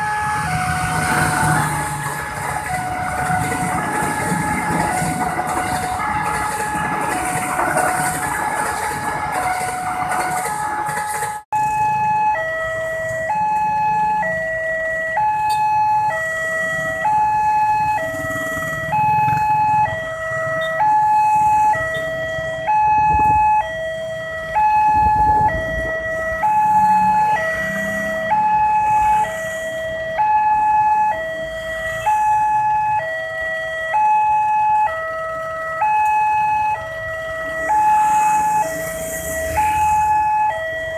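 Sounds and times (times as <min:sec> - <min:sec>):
train carriages rumbling past: 0:00.0 - 0:11.4
vehicle engines running: 0:00.0 - 0:11.5
two-tone crossing alarm: 0:00.0 - 0:40.9.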